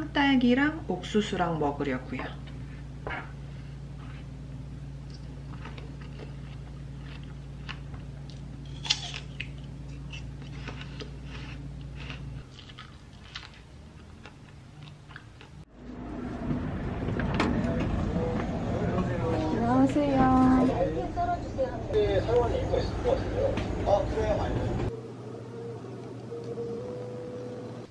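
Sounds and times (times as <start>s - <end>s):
low hum: 0.0s - 27.9s
outdoor background noise: 0.0s - 27.9s
chewing fruit: 5.0s - 15.6s.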